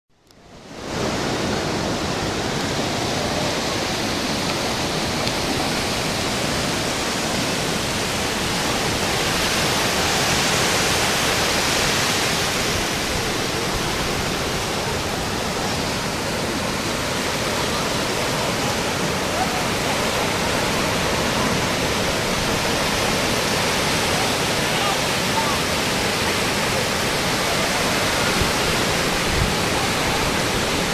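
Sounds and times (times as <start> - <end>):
ocean surf breaking on beach: 0.1 - 30.9.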